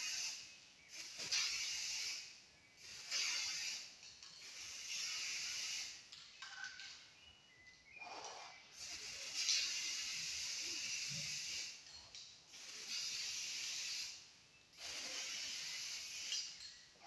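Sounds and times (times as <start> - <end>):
spray paint can hissing: 0.0 - 6.2, 8.7 - 11.9, 12.5 - 16.7.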